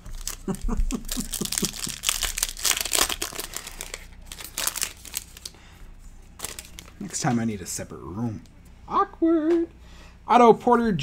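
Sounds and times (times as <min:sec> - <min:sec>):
foil wrapper tearing and crinkling: 0:00.0 - 0:05.6, 0:06.4 - 0:07.2.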